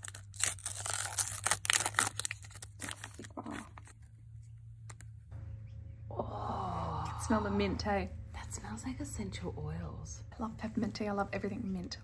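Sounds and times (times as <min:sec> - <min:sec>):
wrapper tearing and crinkling: 0:00.0 - 0:04.1.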